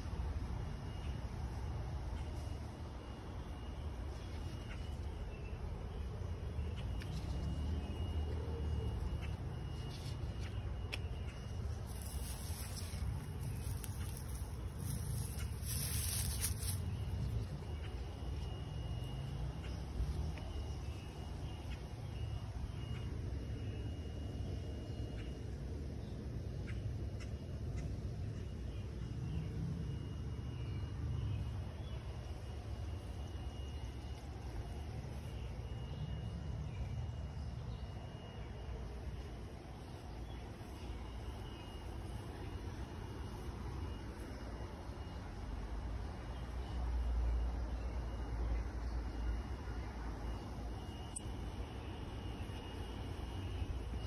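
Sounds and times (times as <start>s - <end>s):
thin high whine: 0.0s - 25.7s, 29.7s - 54.0s
steady low rumble: 0.0s - 54.0s
hand rustling straw mulch: 11.6s - 18.0s.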